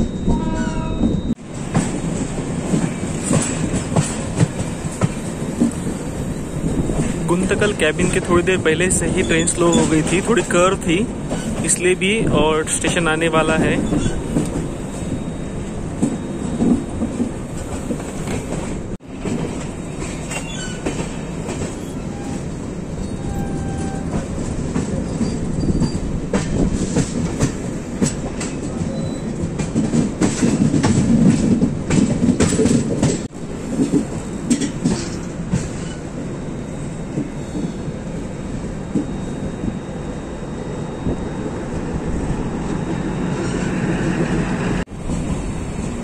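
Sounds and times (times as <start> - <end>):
train wheels clattering: 1.6 - 12.0, 15.9 - 36.1
faint wheel squeals: 20.3 - 24.4.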